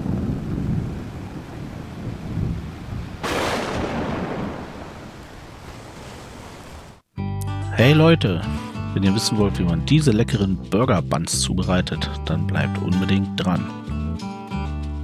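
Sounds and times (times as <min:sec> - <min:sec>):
thunder rumbling and cracking: 0:00.0 - 0:06.7.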